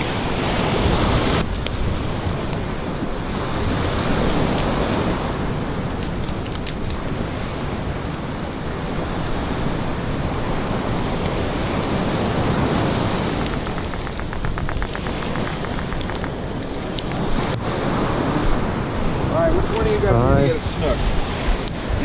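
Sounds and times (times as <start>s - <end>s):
surf rumbling: 0.0s - 22.0s
wind buffeting microphone: 0.0s - 22.0s
quick ticks: 13.2s - 17.6s.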